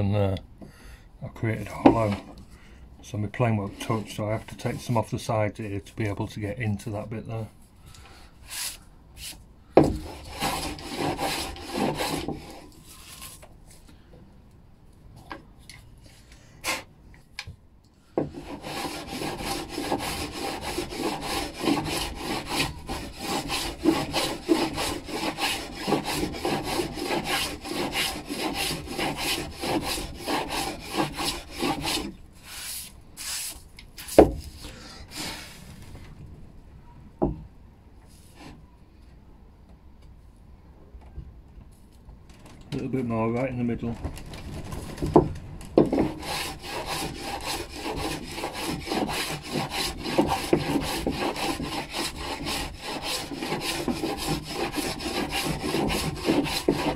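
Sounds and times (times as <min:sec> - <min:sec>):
hand plane rasping on wood: 0:10.0 - 0:12.6, 0:18.2 - 0:32.1, 0:45.8 - 0:56.9.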